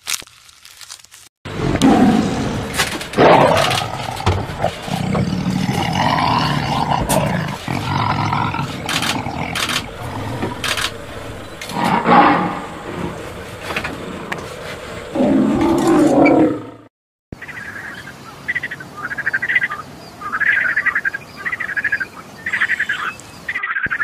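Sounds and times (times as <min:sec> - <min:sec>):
lion roaring and grunting: 0:01.5 - 0:16.9.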